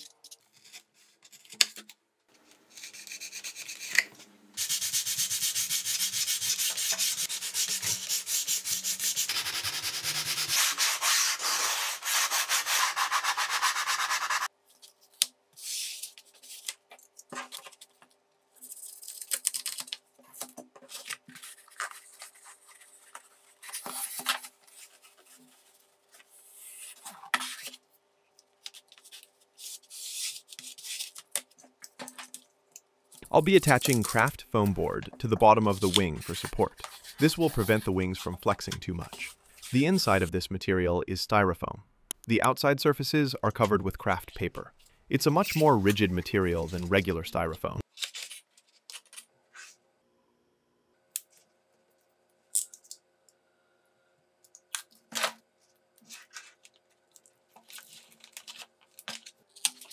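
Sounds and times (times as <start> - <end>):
rubbing and scraping on foam: 4.6 - 14.5.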